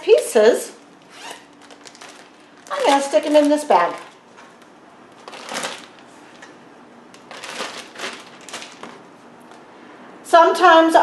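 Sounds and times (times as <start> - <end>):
plastic bag rustling and crinkling: 0.8 - 6.5, 7.2 - 9.1.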